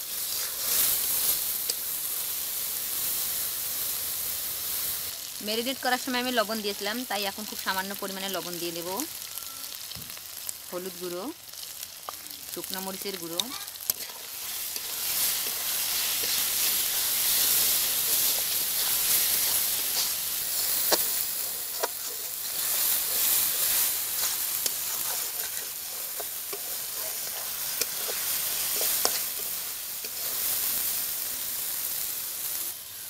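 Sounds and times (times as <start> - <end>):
paste sizzling in hot oil: 0.0 - 33.0
spatula scraping a metal pan: 13.4 - 30.5.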